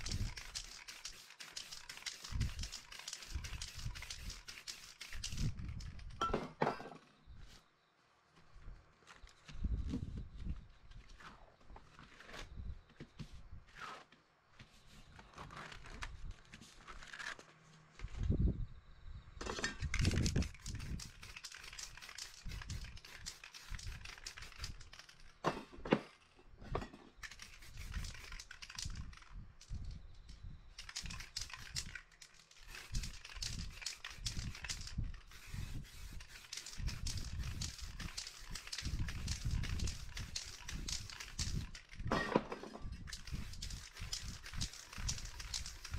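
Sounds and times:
spray paint can hissing: 0.0 - 6.1, 20.0 - 25.2, 27.2 - 29.8, 30.8 - 42.0, 43.0 - 45.9
paper crinkling and rustling: 15.0 - 18.2.

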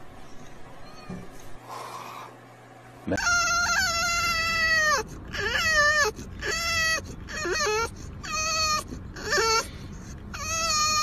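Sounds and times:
dog whining: 3.1 - 11.0.

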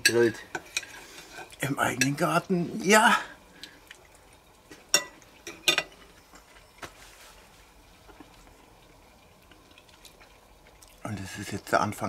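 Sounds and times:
cutlery clinking on a plate: 4.9 - 6.5
faint cutlery scraping: 4.9 - 7.4.

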